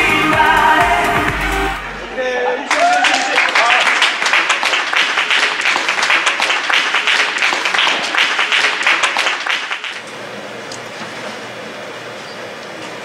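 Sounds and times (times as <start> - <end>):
crowd applause: 1.2 - 10.0.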